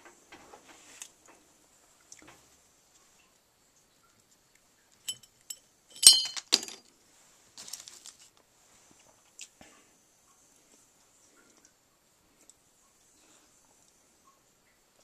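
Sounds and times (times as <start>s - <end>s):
rustle of handling: 0.3s - 1.4s, 7.1s - 9.6s
glass clinking on glass: 5.1s - 6.8s.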